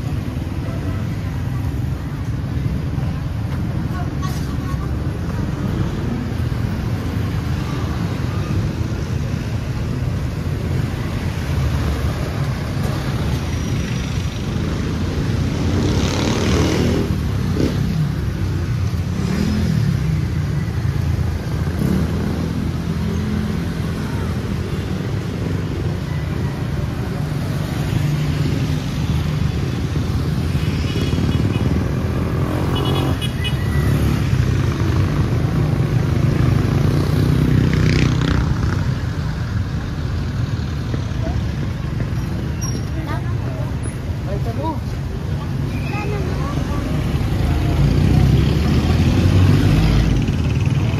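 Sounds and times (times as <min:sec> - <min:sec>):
motorcycles and cars passing: 0:00.0 - 0:50.9.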